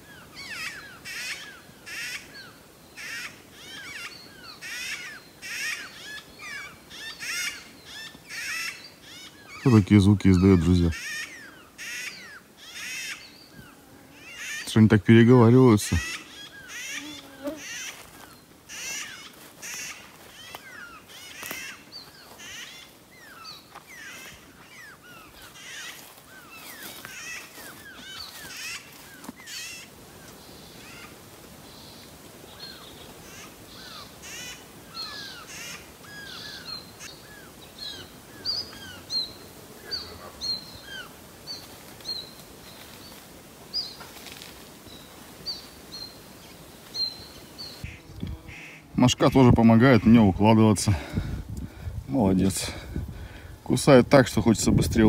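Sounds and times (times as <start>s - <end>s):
sharp high bird calls: 0.0s - 14.8s, 15.7s - 29.9s
downward-sweeping bird calls: 0.0s - 50.3s.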